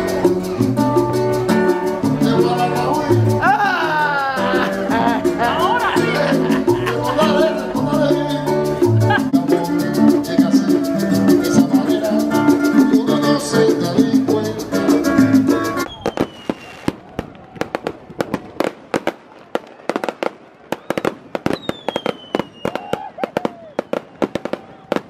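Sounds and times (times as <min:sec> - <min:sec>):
latin guitar music: 0:00.0 - 0:16.7
falling firework whistle: 0:15.8 - 0:18.4, 0:19.6 - 0:25.0
fireworks bangs and crackles: 0:15.8 - 0:25.0.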